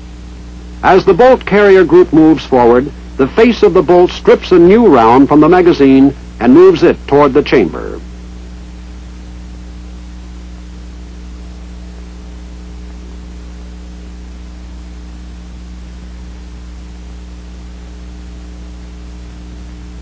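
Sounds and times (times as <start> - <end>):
electrical hum with hiss: 0.0 - 20.0.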